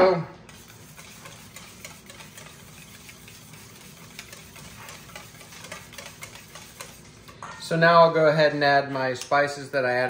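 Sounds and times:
whisk clicking against metal bowl: 0.5s - 7.4s.

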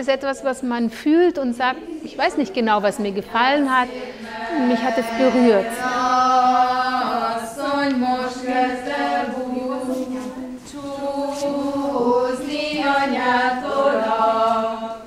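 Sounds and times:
women singing chant-like melody: 3.5s - 15.0s.

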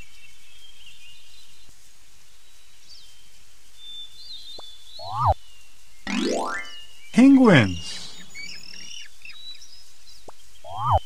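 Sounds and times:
outdoor background hiss: 0.0s - 10.7s
small birds chirping: 0.3s - 11.0s.

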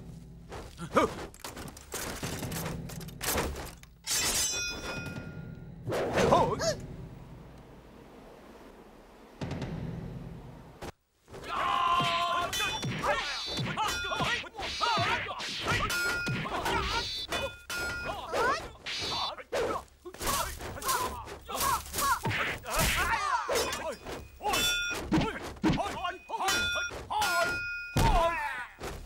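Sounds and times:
short metallic rings: 4.0s - 5.6s, 12.5s - 18.3s, 23.6s - 25.1s, 26.0s - 28.0s
fighters shouting: 11.4s - 28.8s
punches and staff strikes: 11.4s - 29.0s.

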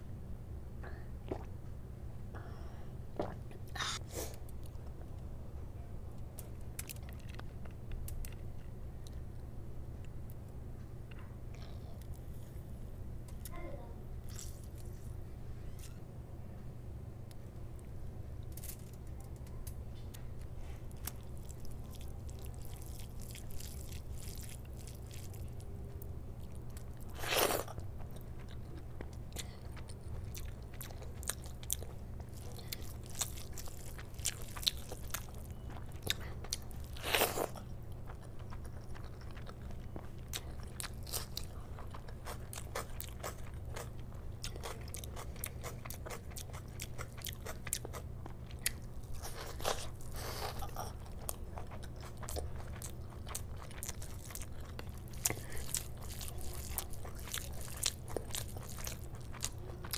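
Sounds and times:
hand squishing rice and gravy: 20.8s - 28.3s, 30.4s - 39.0s, 48.6s - 59.9s
wet chewing: 20.9s - 59.9s.

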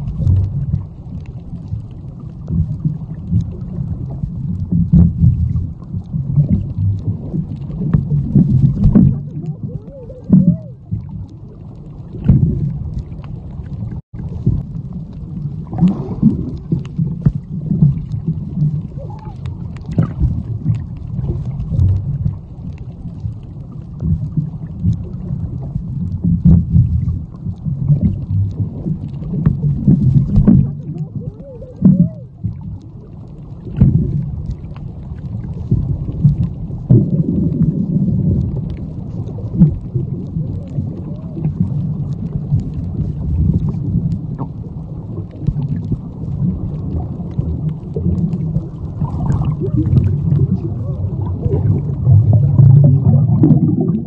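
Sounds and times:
dull underwater knocks: 0.0s - 1.0s, 1.7s - 9.7s, 12.2s - 13.2s, 14.2s - 22.5s, 24.0s - 32.8s, 33.6s - 34.7s, 35.6s - 38.8s
muffled underwater rumbling: 0.0s - 54.0s.

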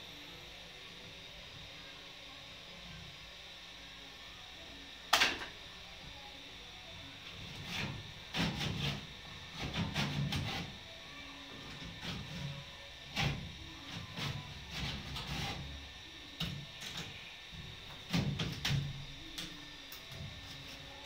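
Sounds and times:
gypsum board rubbing and scraping: 7.5s - 10.9s, 11.7s - 15.8s.

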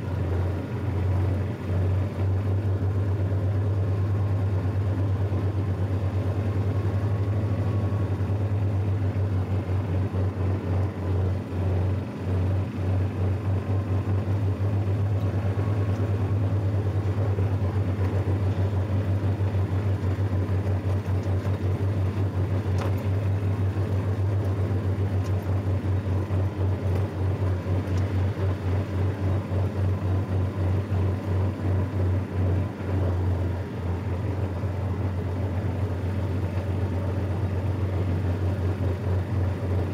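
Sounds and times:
lawn tractor engine running: 0.0s - 39.9s.

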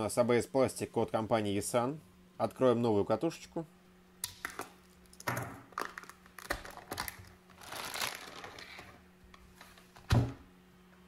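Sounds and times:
plastic bag crinkling: 5.7s - 9.0s.

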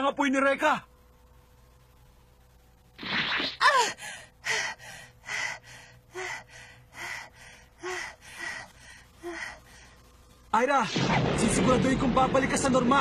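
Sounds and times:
woman panting heavily: 3.6s - 10.1s.

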